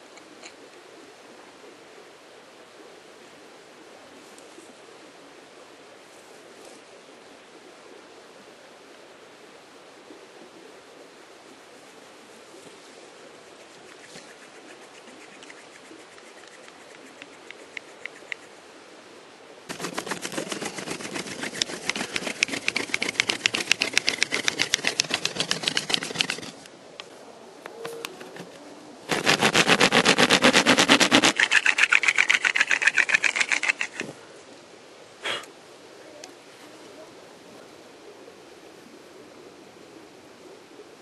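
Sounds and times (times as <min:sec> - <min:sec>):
hand drill grinding into bone: 0:19.7 - 0:26.6, 0:29.1 - 0:34.1.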